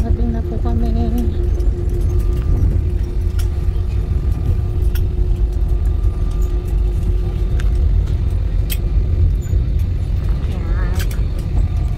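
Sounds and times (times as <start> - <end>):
engine and airflow rumble: 0.0 - 11.9
faint steady hum: 0.0 - 11.9.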